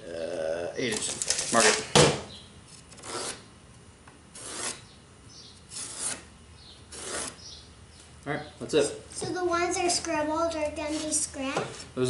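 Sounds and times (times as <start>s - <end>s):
pencil scratching on wood: 4.4s - 4.8s, 6.9s - 7.4s.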